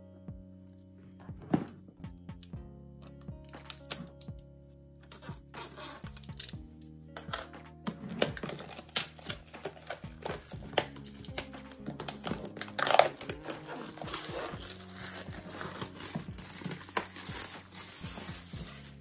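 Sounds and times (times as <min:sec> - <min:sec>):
plastic shrink wrap crinkling: 0:08.0 - 0:19.0.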